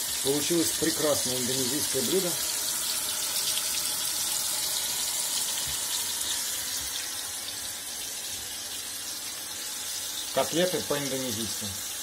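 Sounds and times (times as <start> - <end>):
meat sizzling in a frying pan: 0.0 - 12.0.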